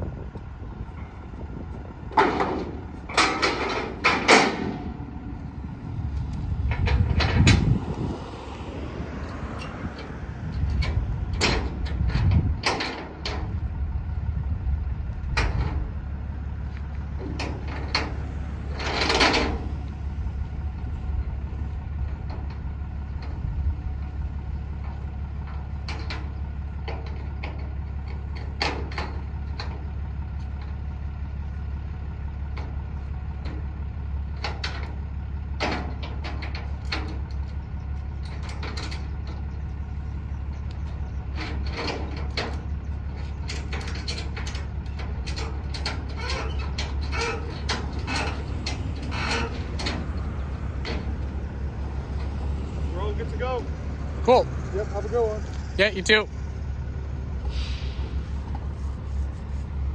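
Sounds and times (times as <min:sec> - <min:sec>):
truck engine idling: 0:00.0 - 0:59.9
metallic clicks and rattles: 0:40.6 - 0:52.4
loud scrape: 0:57.4 - 0:59.8.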